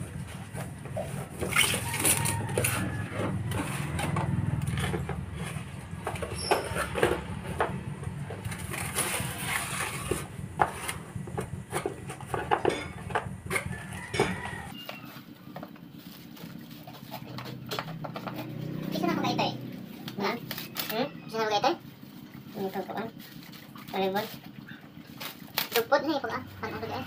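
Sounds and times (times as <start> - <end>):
paper wrapping rustling: 8.2 - 12.3.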